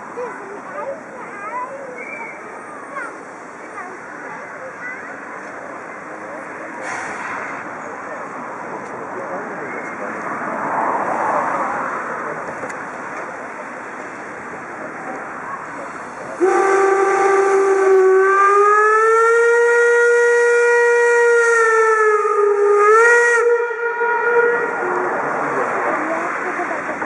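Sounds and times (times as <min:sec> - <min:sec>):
crowd noise: 0:00.0 - 0:18.0, 0:24.3 - 0:27.0
steam whistle blast: 0:16.4 - 0:24.9.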